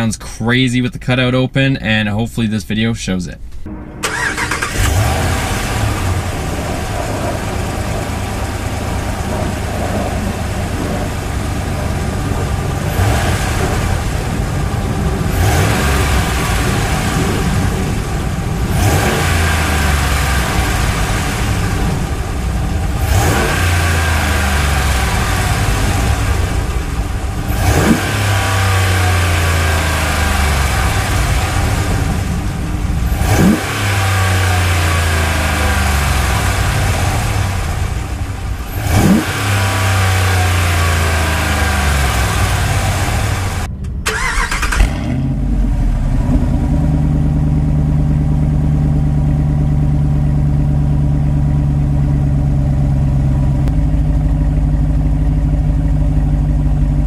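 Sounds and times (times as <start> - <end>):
truck engine idling: 3.4 - 57.0
truck engine revving: 3.6 - 53.9.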